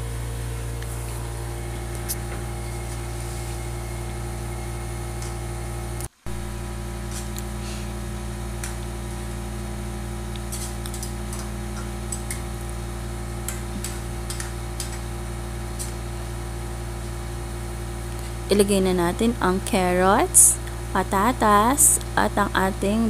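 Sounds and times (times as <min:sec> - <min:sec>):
steady low hum: 0:00.0 - 0:23.0
metal spoon scraping a wok: 0:10.5 - 0:11.4.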